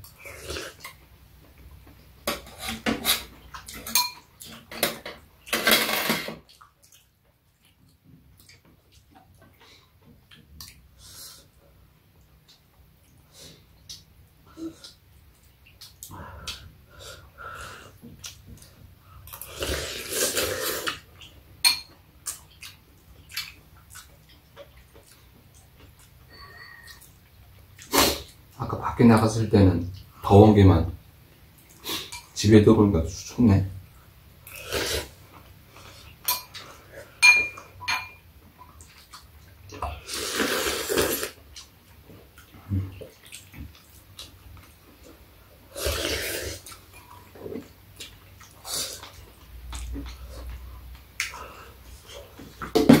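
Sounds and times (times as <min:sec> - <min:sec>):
spoons clinking on ceramic bowls: 0:03.9 - 0:04.2, 0:37.2 - 0:38.2
chewing: 0:06.5 - 0:10.8, 0:22.2 - 0:28.4, 0:38.6 - 0:45.2, 0:45.9 - 0:52.7.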